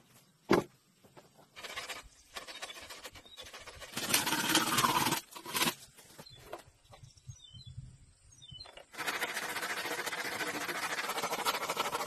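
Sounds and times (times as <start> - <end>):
bamboo and leaves scraping grass: 1.5 - 6.6.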